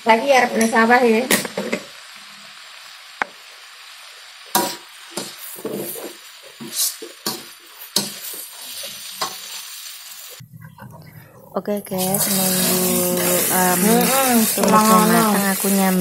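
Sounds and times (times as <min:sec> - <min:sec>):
food sizzling in wok: 0:00.0 - 0:10.4, 0:11.9 - 0:16.0
spatula scraping pan: 0:12.0 - 0:16.0.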